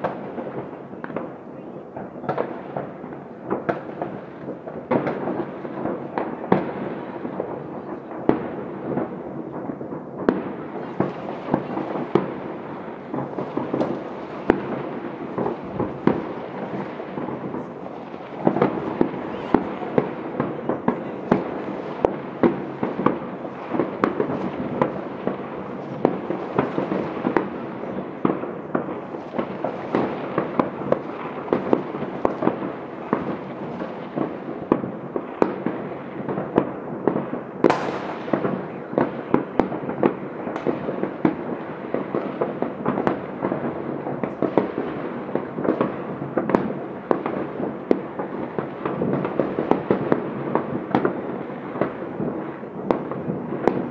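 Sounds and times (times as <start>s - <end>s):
distant fireworks bangs and crackling: 0.0s - 53.9s
sharp close firework bang: 2.2s - 41.5s.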